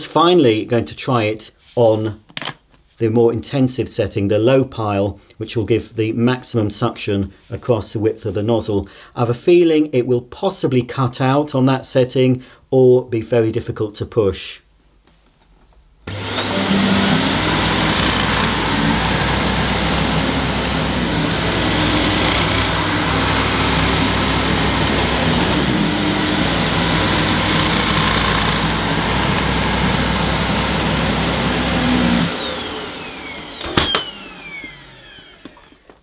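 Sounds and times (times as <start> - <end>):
vacuum cleaner running: 16.1 - 36.0.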